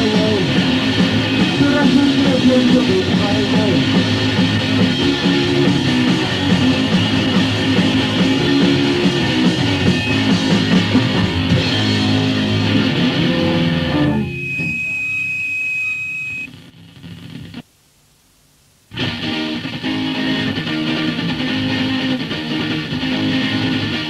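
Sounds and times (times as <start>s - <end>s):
punk rock song: 0.0s - 15.0s, 18.9s - 24.0s
guitar: 0.0s - 17.7s, 18.9s - 24.0s
held high tone: 13.4s - 16.5s.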